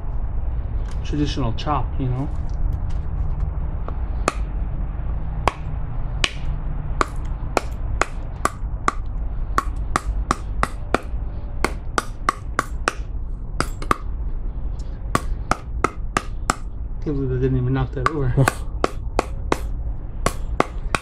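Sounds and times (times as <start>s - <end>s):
knife chopping wood: 5.5s - 9.0s, 9.6s - 13.0s, 15.2s - 16.7s, 18.0s - 19.7s, 20.3s - 21.0s.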